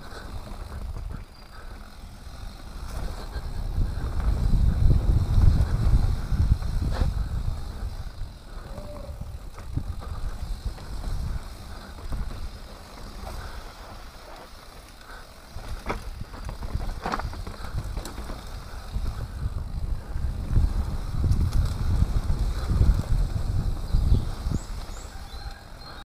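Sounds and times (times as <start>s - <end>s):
wind rumble on microphone: 0.0s - 13.7s, 15.1s - 26.0s
bike clicks and rattles: 0.0s - 26.0s
bike tyres on dirt: 0.0s - 26.0s.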